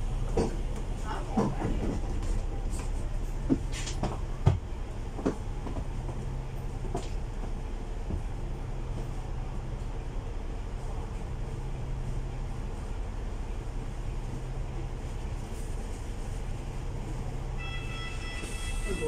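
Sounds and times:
bus body rattling and knocking: 0:00.0 - 0:09.6
bus diesel engine idling: 0:00.0 - 0:19.0.

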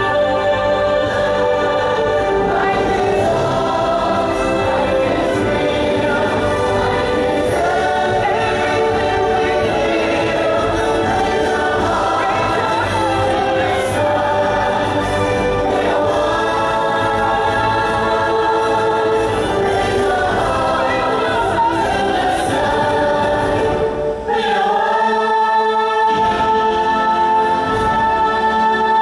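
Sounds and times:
orchestra playing: 0:00.0 - 0:24.9
choir singing: 0:00.0 - 0:29.0.

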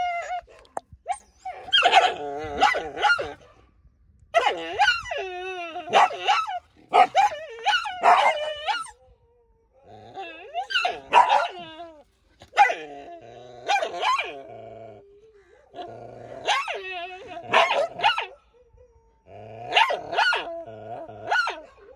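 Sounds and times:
dog whining and yelping: 0:00.0 - 0:03.5, 0:04.4 - 0:09.1, 0:09.8 - 0:13.0, 0:16.4 - 0:21.9.

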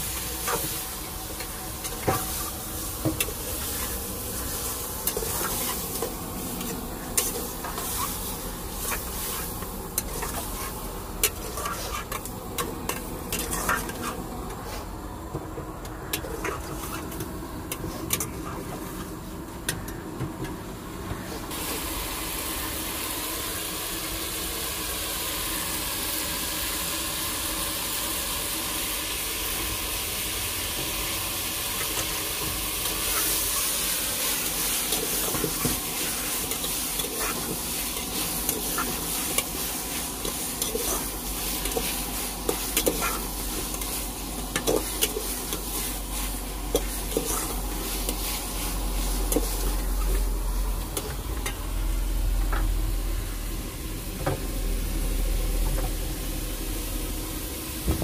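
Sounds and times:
chicken sizzling in a pan: 0:00.0 - 0:14.8, 0:21.5 - 0:58.0
spatula scraping a pan: 0:07.1 - 0:14.9, 0:32.8 - 0:50.2.

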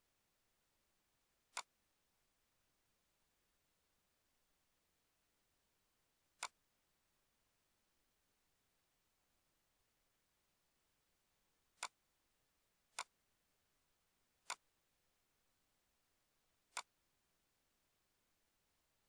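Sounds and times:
computer mouse clicks: 0:01.5 - 0:01.7, 0:06.4 - 0:06.6, 0:11.8 - 0:12.0, 0:12.9 - 0:13.2, 0:14.4 - 0:14.7, 0:16.7 - 0:16.9.

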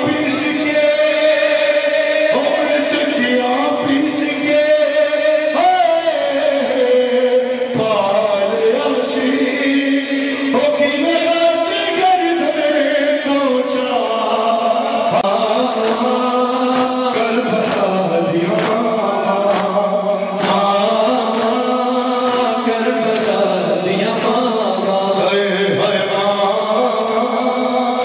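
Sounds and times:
men chanting a lament: 0:00.0 - 0:28.0
rhythmic chest-beating slaps: 0:14.8 - 0:27.4.

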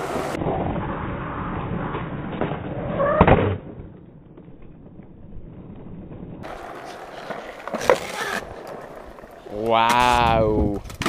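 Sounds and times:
skateboard wheels rolling on concrete: 0:00.0 - 0:11.0
skateboard clacking on ground: 0:06.4 - 0:11.0.

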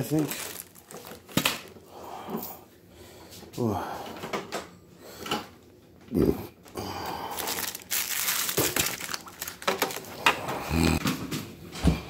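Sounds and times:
plastic packaging crinkling: 0:00.0 - 0:01.8, 0:07.2 - 0:10.5.

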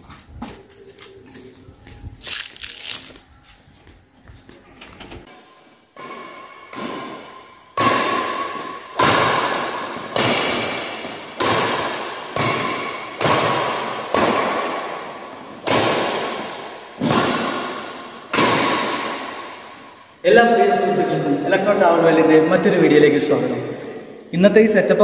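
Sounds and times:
rackets hitting shuttlecock: 0:06.0 - 0:19.8.

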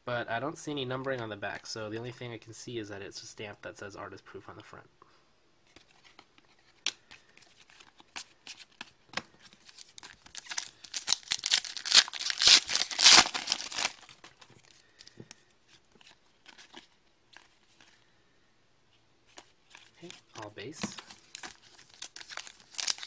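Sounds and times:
wrapper tearing and crinkling: 0:09.7 - 0:14.4, 0:21.0 - 0:23.0.

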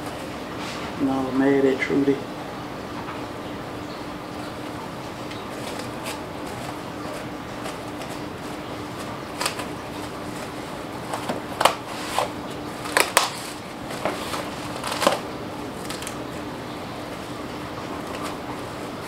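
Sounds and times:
cling film crinkling: 0:04.6 - 0:19.0.

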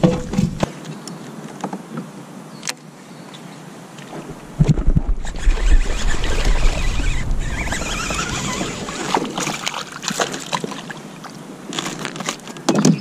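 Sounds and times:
fish splashing and thrashing in water: 0:04.2 - 0:12.5.

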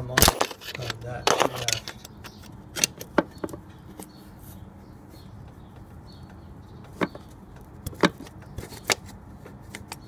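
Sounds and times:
pry tool metal clicks: 0:00.2 - 0:03.6.

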